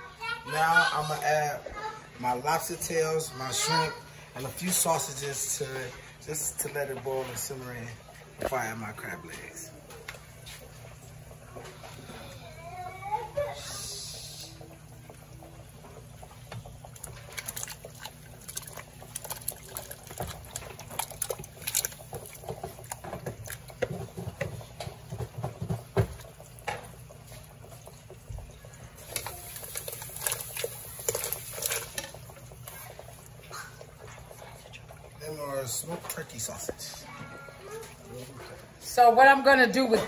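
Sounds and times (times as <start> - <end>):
water boiling in a pot: 0.0 - 40.0
food splashing into water: 14.7 - 35.2.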